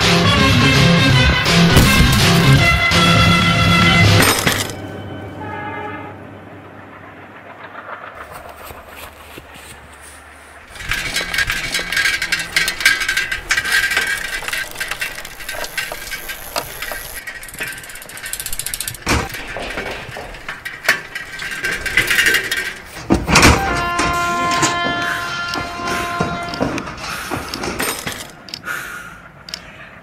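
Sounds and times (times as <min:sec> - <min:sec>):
crash: 0:01.6 - 0:04.9, 0:06.8 - 0:09.6, 0:10.6 - 0:24.2
bicycle freewheel ratchet clicking: 0:10.8 - 0:19.1.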